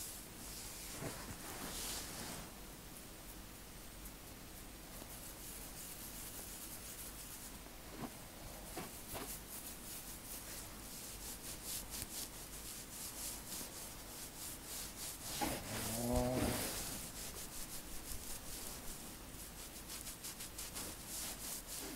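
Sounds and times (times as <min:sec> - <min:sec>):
fingertips rubbing hair braids: 0:05.0 - 0:07.6, 0:08.7 - 0:21.9.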